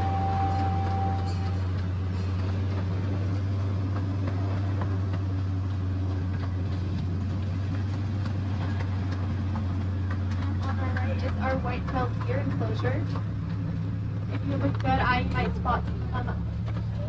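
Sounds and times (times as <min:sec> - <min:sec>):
miniature train running: 0:00.0 - 0:05.3.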